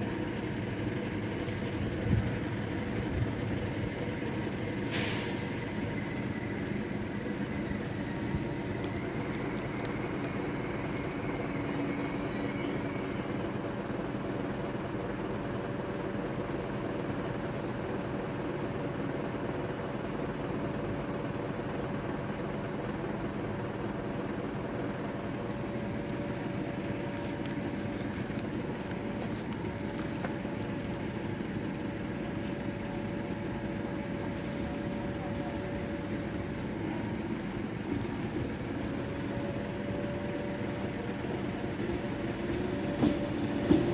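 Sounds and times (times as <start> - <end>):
electric train humming: 0.0 - 43.9.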